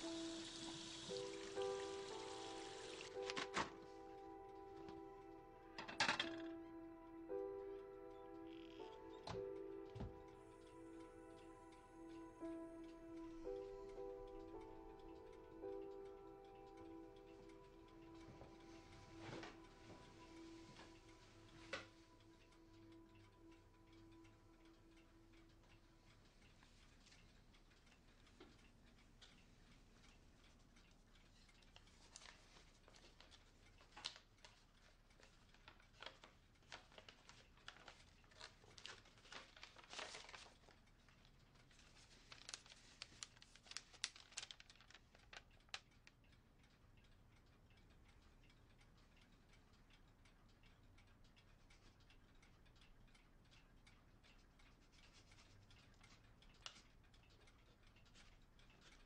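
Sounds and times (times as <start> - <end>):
paper crackling and rustling: 36.0 - 40.8, 41.7 - 45.8.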